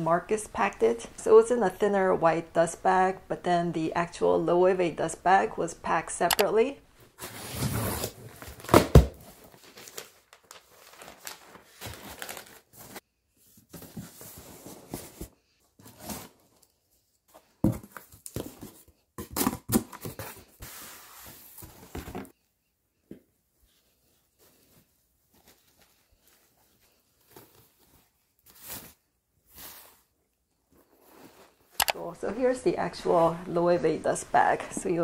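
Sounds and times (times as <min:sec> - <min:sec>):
packing paper rustling: 0:07.2 - 0:13.0.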